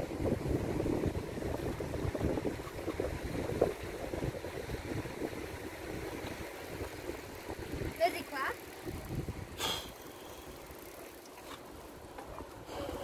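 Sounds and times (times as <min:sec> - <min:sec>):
wind buffeting microphone: 0:00.0 - 0:09.6
bicycle rolling on pavement: 0:00.0 - 0:13.0.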